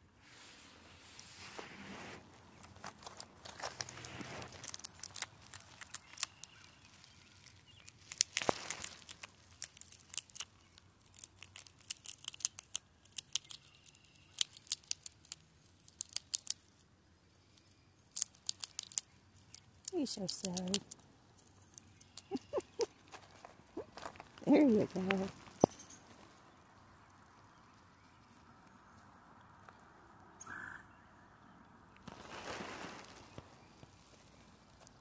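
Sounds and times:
peanut shells clicking and rustling: 2.5s - 26.4s.

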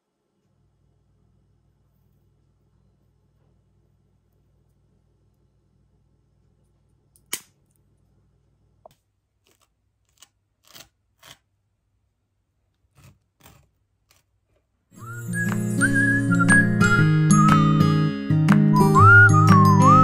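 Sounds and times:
knife scraping butter on toast: 12.9s - 14.3s
light tinkling music: 15.0s - 20.0s.

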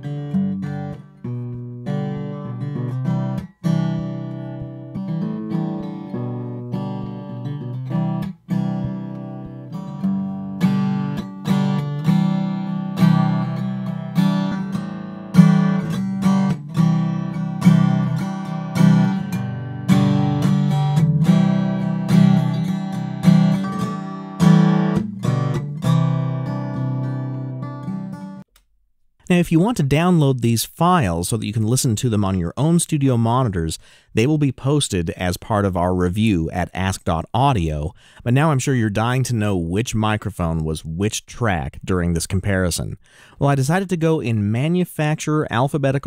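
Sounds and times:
acoustic guitar strumming chords: 0.0s - 28.4s.

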